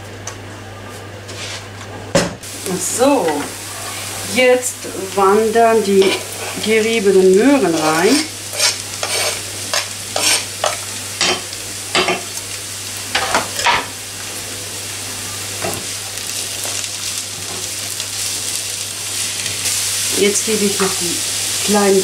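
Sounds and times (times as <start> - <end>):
vegetables sizzling in a frying pan: 2.4 - 22.0
knife scraping a cutting board: 8.5 - 10.5.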